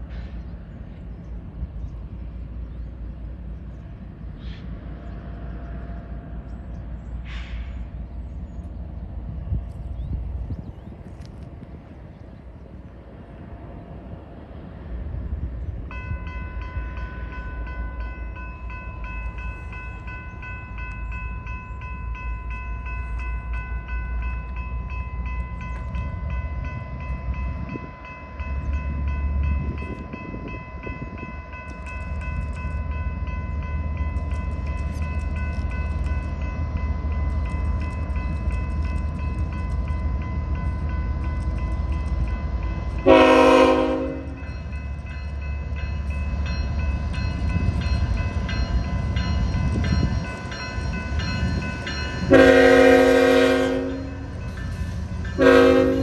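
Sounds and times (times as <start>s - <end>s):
approaching train rumble: 0.0s - 56.0s
crossing warning bell ringing: 15.8s - 56.0s.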